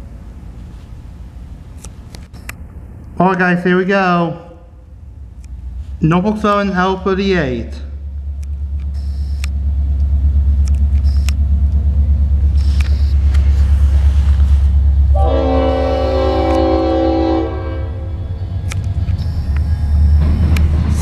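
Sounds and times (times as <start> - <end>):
diesel locomotive rumbling: 0.0 - 21.0
train air horn blast: 15.1 - 18.3.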